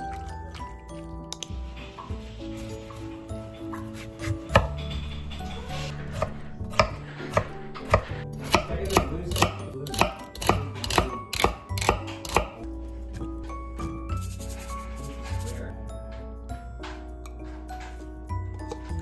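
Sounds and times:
knife chopping on wooden board: 3.8s - 4.8s, 6.1s - 12.6s.

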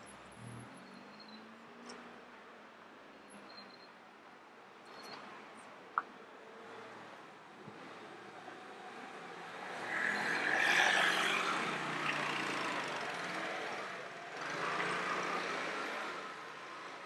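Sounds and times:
vehicles passing: 5.3s - 17.0s.

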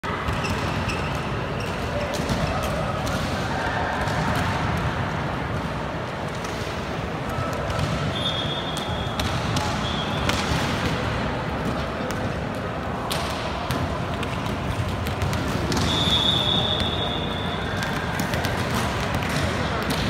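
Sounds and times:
echoing hall noise: 0.0s - 20.0s
referee's whistle: 8.0s - 9.2s, 9.8s - 10.3s, 15.8s - 17.8s.

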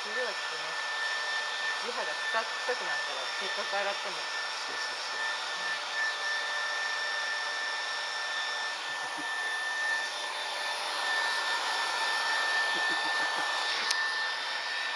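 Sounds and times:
hair dryer running: 0.0s - 14.9s.

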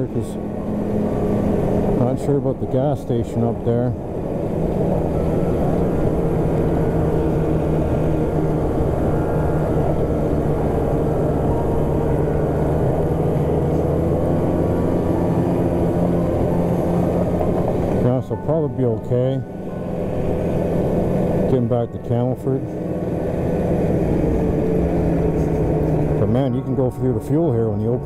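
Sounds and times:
snowmobile engine running: 0.0s - 28.0s
track noise: 0.0s - 28.0s.

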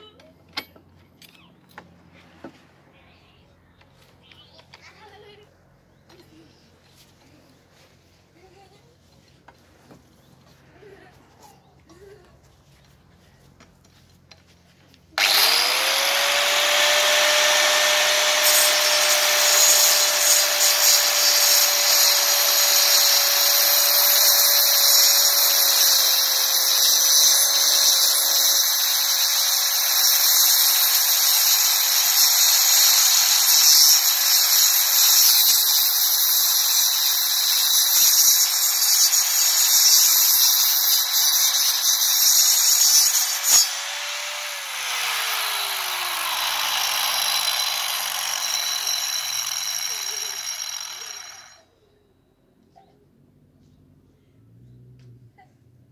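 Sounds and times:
angle grinder sawing wood: 15.2s - 51.6s.

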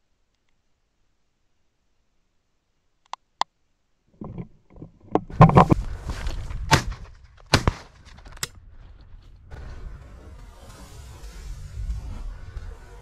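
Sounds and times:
rustling and handling noise: 4.2s - 9.3s
shotgun shots: 6.7s - 8.0s.

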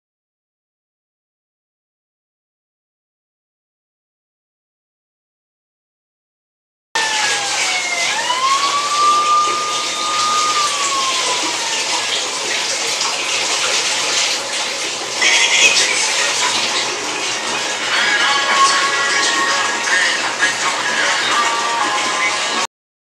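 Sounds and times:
whining tone: 7.0s - 12.7s
water running from a tap: 7.0s - 22.7s.

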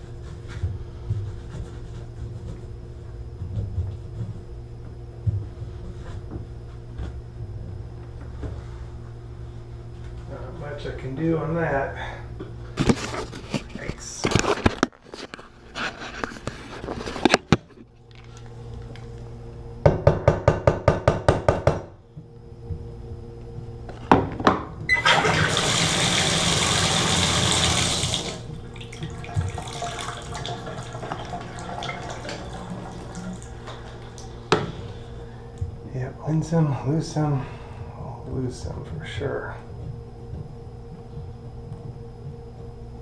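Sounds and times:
water running from faucet: 24.9s - 34.3s.

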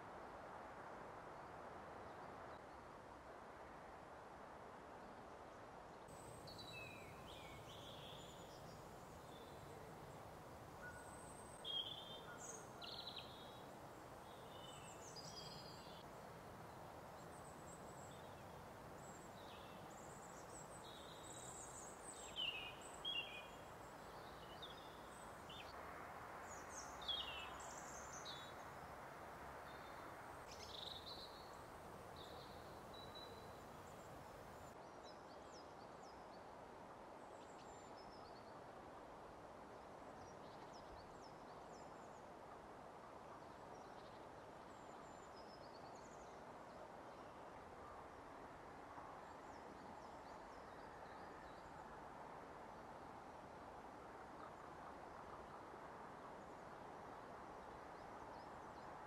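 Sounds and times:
faint background hiss: 0.0s - 59.0s
songbirds chirping: 6.2s - 25.8s, 26.5s - 34.8s.

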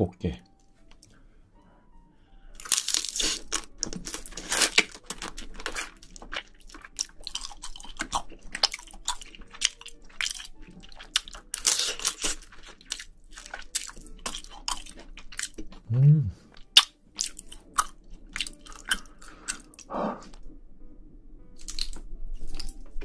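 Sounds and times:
crunchy chewing: 2.6s - 15.8s, 16.5s - 20.4s.

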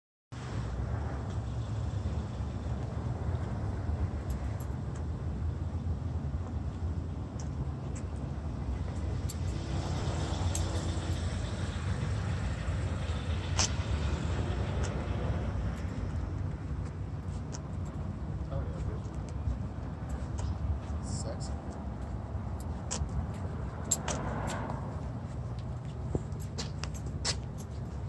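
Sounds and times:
low outdoor rumble: 0.4s - 28.0s.

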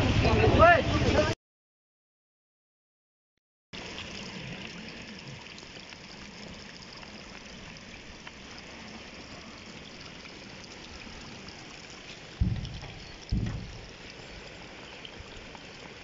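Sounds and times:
rain falling on wet ground: 3.8s - 16.0s.

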